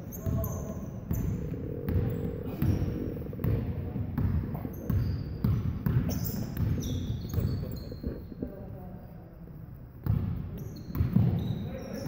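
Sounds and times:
sneakers squeaking: 0.0 - 9.1, 10.0 - 12.0
basketball bouncing on wood floor: 1.1 - 8.2, 10.0 - 11.4.

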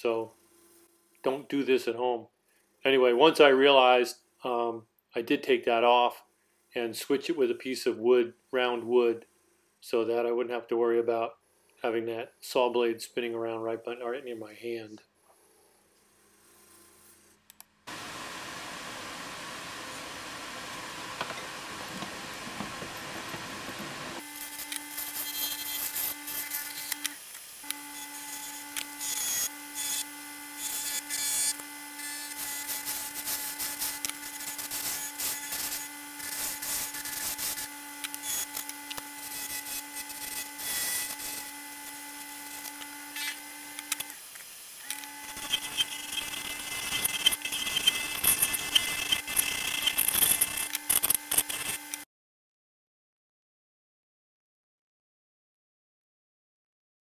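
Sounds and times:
lathe motor hum: 17.9 - 50.0
turning tool scraping wood: 21.1 - 52.0.

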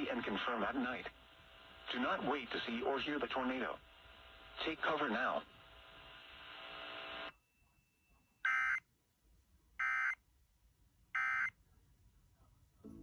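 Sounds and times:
radio receiver hiss: 0.0 - 7.3.

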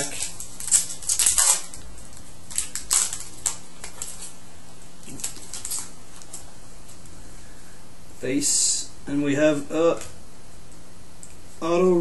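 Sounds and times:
foil wrapper crinkling: 0.0 - 4.4, 5.0 - 6.4.

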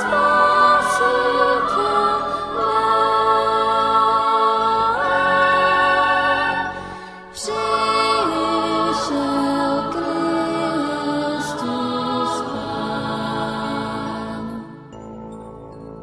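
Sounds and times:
choir singing slowly: 0.0 - 15.0.

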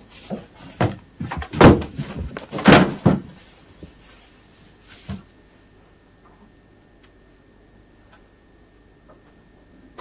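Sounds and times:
footsteps across a room: 0.0 - 5.4.

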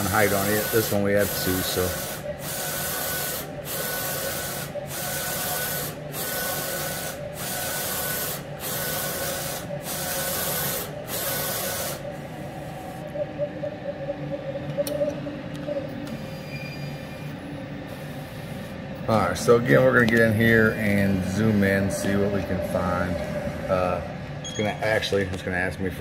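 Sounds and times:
low hum: 12.0 - 26.0.

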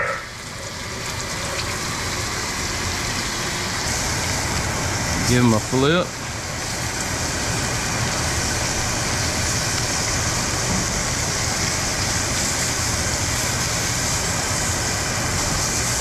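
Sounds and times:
low hum: 0.0 - 5.2.

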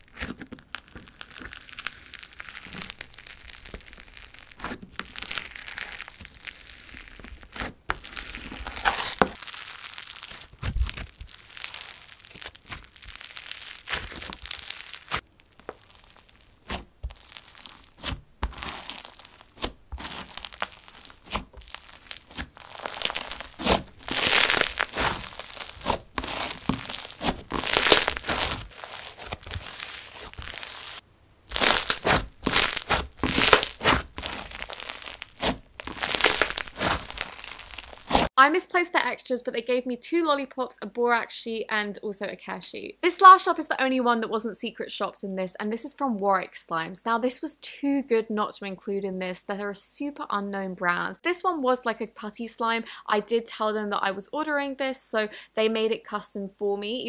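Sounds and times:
foam bead slime crunching pops: 0.0 - 38.3.

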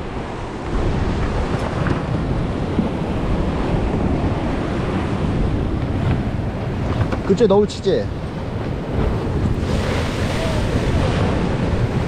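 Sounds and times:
wind buffeting microphone: 0.0 - 12.0
sea swell washing over rocks: 8.4 - 12.0.

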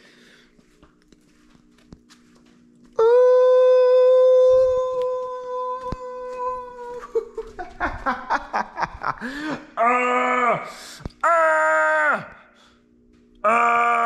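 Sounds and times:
man laughing: 6.3 - 9.9.

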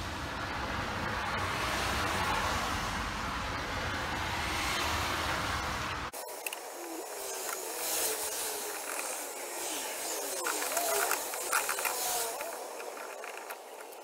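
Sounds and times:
rubber hose squeaking and scuffing: 6.9 - 14.0.

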